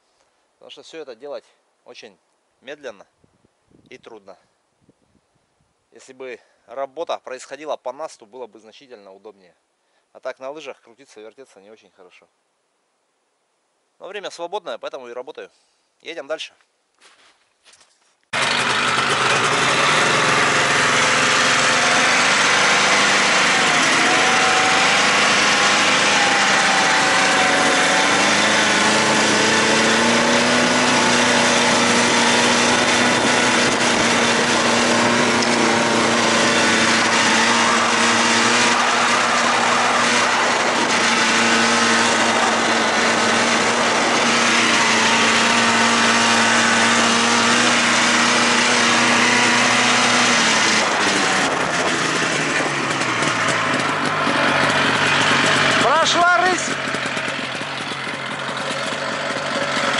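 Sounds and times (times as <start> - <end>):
snowmobile engine running: 18.4 - 59.9.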